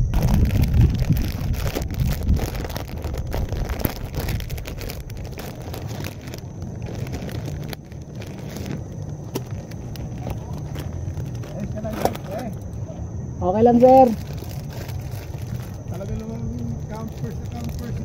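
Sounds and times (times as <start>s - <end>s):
wind buffeting microphone: 0.0s - 12.1s.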